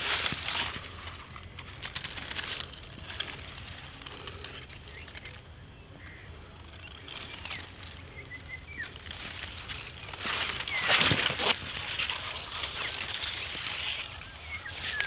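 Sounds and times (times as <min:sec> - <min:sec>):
leaves rustling: 0:00.0 - 0:15.0
faint bird chirps: 0:03.3 - 0:15.0.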